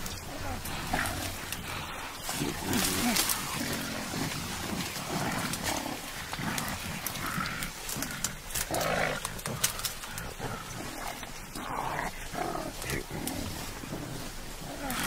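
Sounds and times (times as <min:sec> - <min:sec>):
gorilla rough calls: 0:00.0 - 0:15.0
rustling: 0:00.0 - 0:15.0
bamboo stems snapping: 0:02.3 - 0:03.8, 0:04.8 - 0:10.4.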